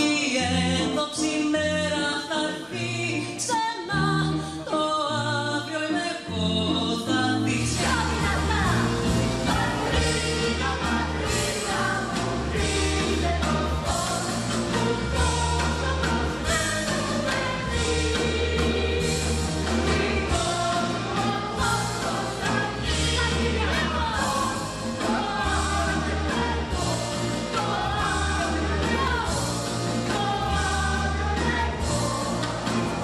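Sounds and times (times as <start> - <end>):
band with pulsing bass: 7.7 - 33.0
cast singing together: 7.8 - 33.0.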